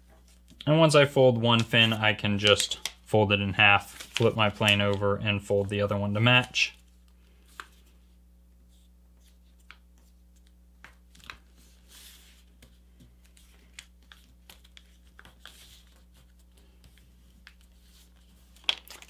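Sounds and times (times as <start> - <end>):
low steady hum: 0.0 - 19.0
paper rustling and crinkling: 3.6 - 5.2, 8.7 - 19.0.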